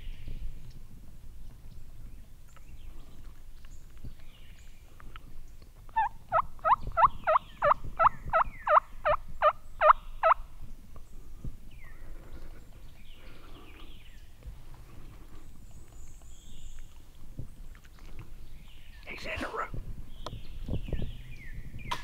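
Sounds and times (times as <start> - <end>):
turkey yelping: 6.0 - 9.2, 9.8 - 10.4.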